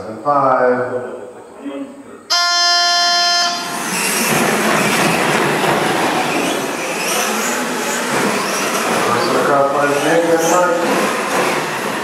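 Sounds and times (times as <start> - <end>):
electronic race-start tone: 2.3 - 4.0.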